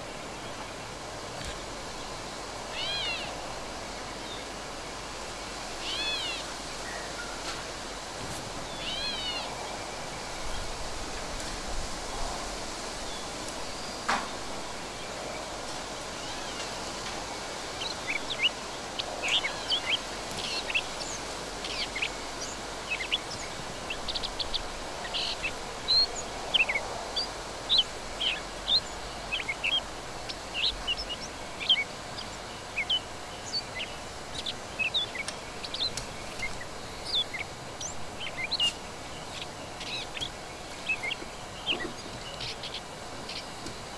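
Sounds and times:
birds chirping: 0:00.0 - 0:11.3, 0:13.0 - 0:43.9
outdoor background hiss: 0:00.0 - 0:43.9.

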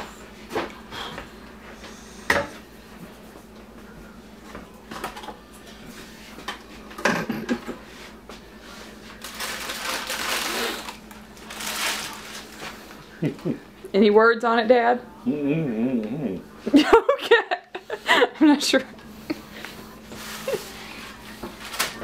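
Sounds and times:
clicks and knocks of kitchen items: 0:04.9 - 0:05.4.

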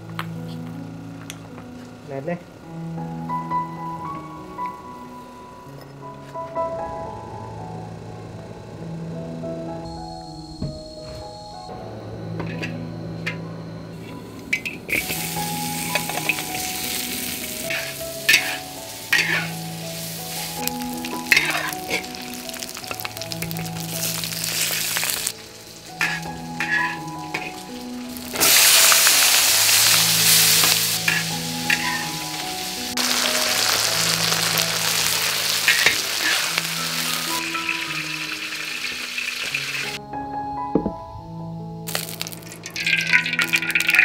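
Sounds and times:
soft background music: 0:00.0 - 0:44.0
food sizzling in hot oil: 0:13.2 - 0:40.0, 0:41.9 - 0:44.0
metal spatula scraping a pan: 0:17.6 - 0:19.6, 0:20.4 - 0:23.0, 0:26.0 - 0:29.1, 0:29.7 - 0:32.4, 0:33.0 - 0:38.2.

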